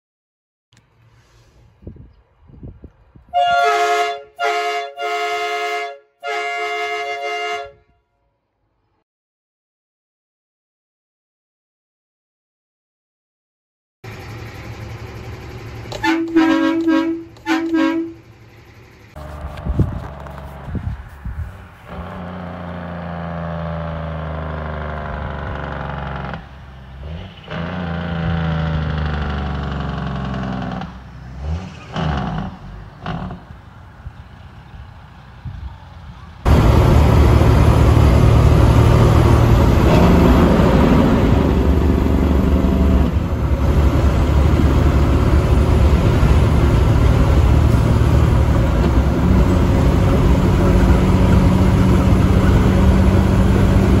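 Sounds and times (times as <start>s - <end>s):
truck engine running: 14.0s - 54.0s
loud rough engine running: 14.1s - 20.9s, 21.9s - 26.6s, 27.4s - 31.1s, 36.5s - 54.0s.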